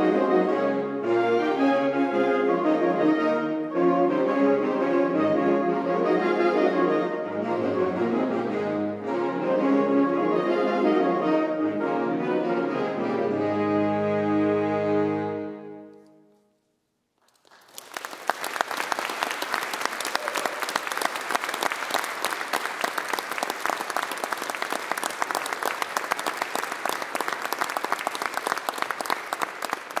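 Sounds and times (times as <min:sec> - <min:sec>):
saxophone ensemble chord: 0:00.0 - 0:15.9
audience applause: 0:17.2 - 0:30.0.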